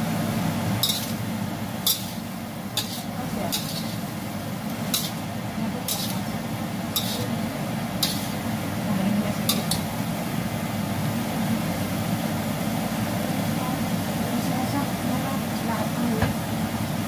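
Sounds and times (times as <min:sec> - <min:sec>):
steady low hum: 0:00.0 - 0:17.0
metal spatula scraping a wok: 0:00.8 - 0:07.4, 0:08.0 - 0:08.4, 0:09.4 - 0:09.9.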